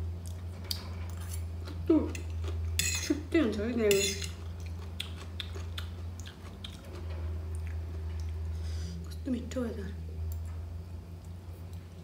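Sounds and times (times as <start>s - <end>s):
steady low hum: 0.0s - 12.0s
fork scraping a plate: 2.8s - 3.2s
chewing: 4.3s - 8.5s.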